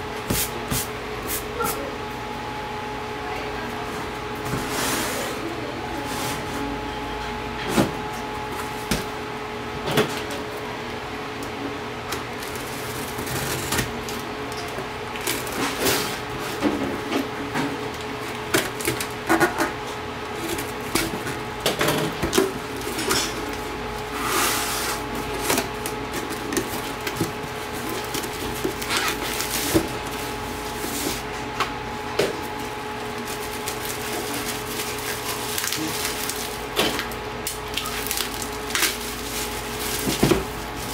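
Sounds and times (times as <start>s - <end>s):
rustling of flaps and packing tape: 20.4s - 31.3s, 32.4s - 40.9s
bubble wrap crinkling: 25.0s - 31.3s, 32.4s - 40.9s.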